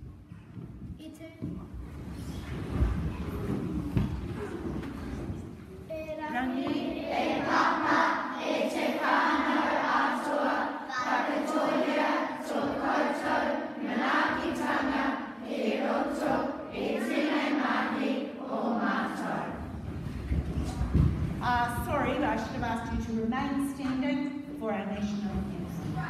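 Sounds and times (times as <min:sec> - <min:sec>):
girl speaking into a microphone: 0:01.0 - 0:01.6, 0:05.9 - 0:06.7
children chanting in unison: 0:06.5 - 0:19.6.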